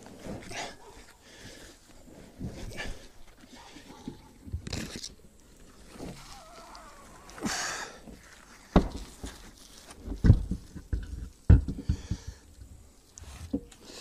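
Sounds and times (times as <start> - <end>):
man exhaling hard: 6.2 - 8.1.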